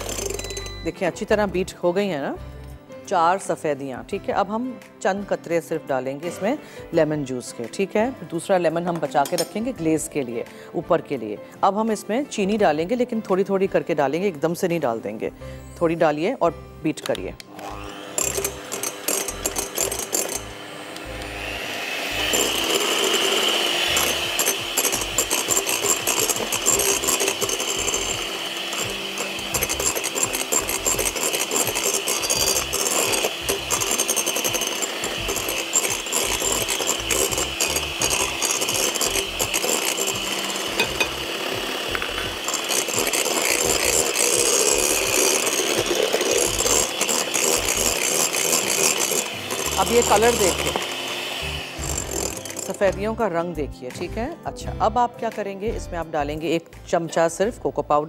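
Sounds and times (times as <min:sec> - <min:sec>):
electric beater motor whine: 0:17.5 - 0:53.1.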